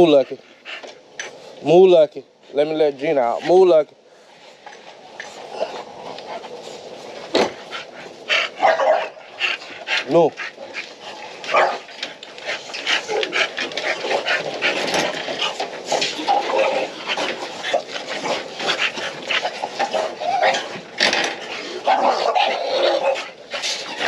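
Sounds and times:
dog sounds: 0:07.6 - 0:24.0.

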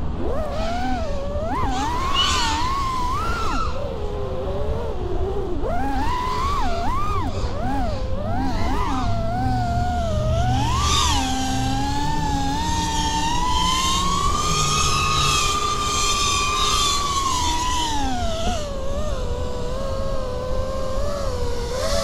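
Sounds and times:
quadcopter motor and propeller whine: 0:00.0 - 0:22.0.

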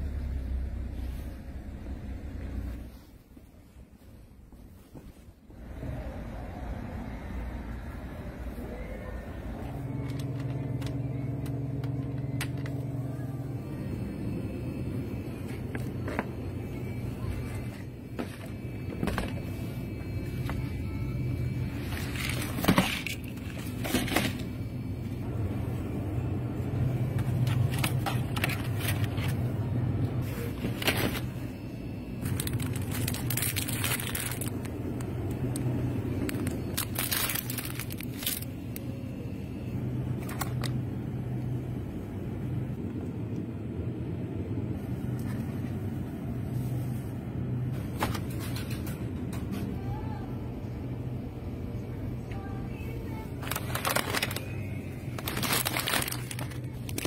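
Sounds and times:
low store hum: 0:00.0 - 0:57.0
packaged food rustling: 0:21.8 - 0:24.6, 0:27.1 - 0:31.5, 0:32.2 - 0:38.6, 0:53.2 - 0:57.0.

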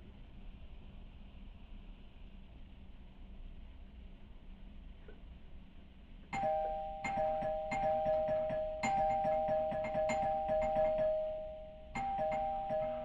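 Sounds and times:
two-tone doorbell chime: 0:06.4 - 0:13.0.

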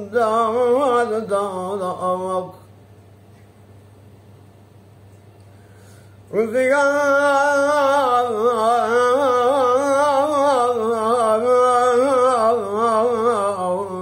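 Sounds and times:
man singing unaccompanied: 0:00.0 - 0:02.7, 0:06.3 - 0:14.0.

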